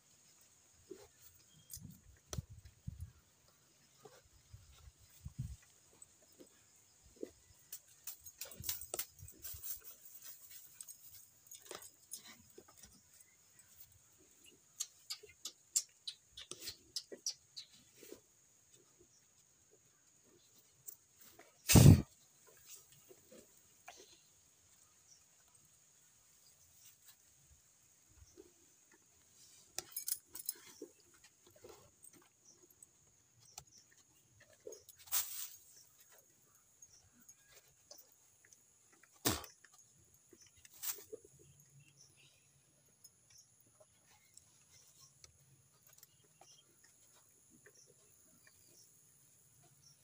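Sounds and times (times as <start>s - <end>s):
faint clinks: 4.0s - 15.9s, 28.2s - 48.8s.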